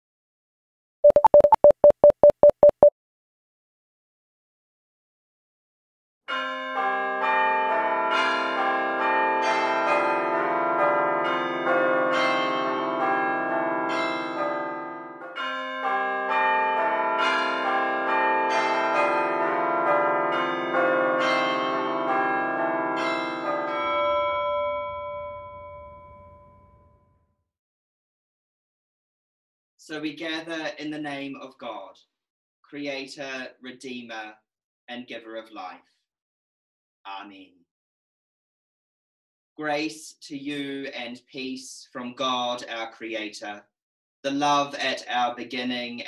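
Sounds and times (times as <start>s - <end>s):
church bells ringing: 6.3s - 26.0s.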